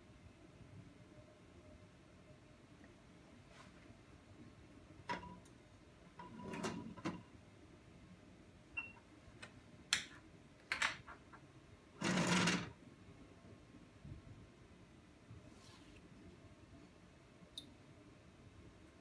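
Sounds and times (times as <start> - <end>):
balance beep: 8.8 - 9.0.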